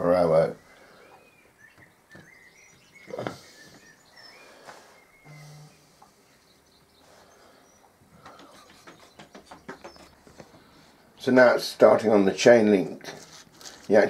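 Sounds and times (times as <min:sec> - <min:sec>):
faint bird chirps: 0:00.4 - 0:10.8.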